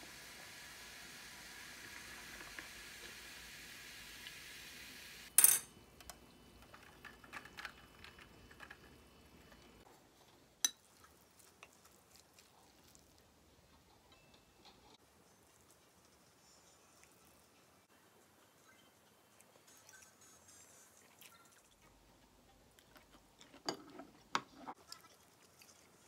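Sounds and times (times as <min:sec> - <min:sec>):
sparkling drink fizzing: 0:00.0 - 0:05.3.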